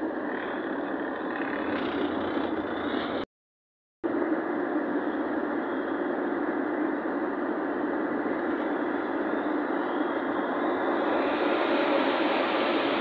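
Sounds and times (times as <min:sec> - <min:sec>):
vehicle cabin road and engine noise: 0:00.0 - 0:03.3, 0:04.1 - 0:13.0.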